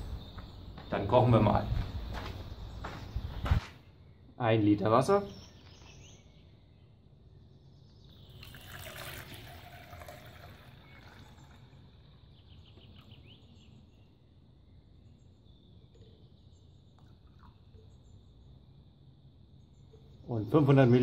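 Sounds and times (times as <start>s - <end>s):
water pouring into metal mug: 8.1s - 13.1s, 17.0s - 17.7s.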